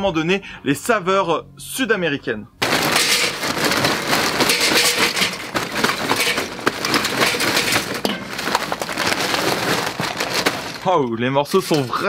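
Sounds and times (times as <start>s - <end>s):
charcoal clattering into metal chimney: 2.6s - 12.0s.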